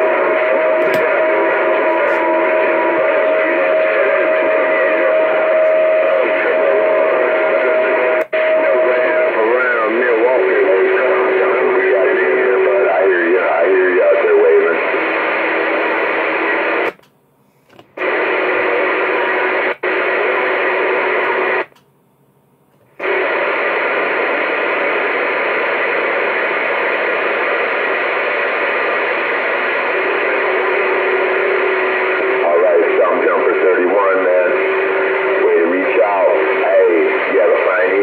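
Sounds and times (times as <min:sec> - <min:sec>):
faint voice over radio: 0:00.0 - 0:15.0, 0:31.9 - 0:38.0
radio static hiss: 0:00.0 - 0:21.8, 0:22.8 - 0:38.0.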